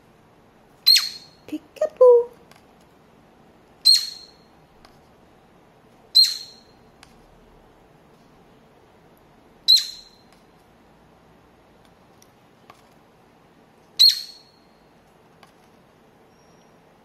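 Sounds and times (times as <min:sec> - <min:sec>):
cockatiel chirps: 0:00.8 - 0:01.5, 0:03.8 - 0:04.5, 0:06.1 - 0:06.8, 0:09.6 - 0:10.3, 0:14.0 - 0:14.8.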